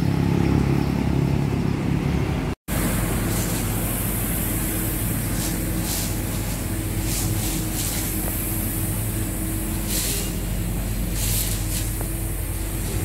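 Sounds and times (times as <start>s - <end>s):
low engine drone: 0.0s - 13.0s
outdoor traffic hum: 0.0s - 13.0s
short bursts of hiss: 2.8s - 12.9s.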